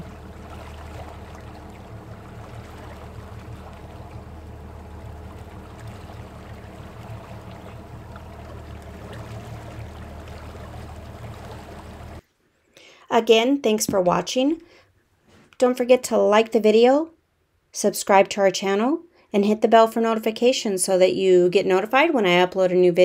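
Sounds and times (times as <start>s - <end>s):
boat engine droning: 0.0s - 12.2s
faint rush of water: 0.0s - 12.2s.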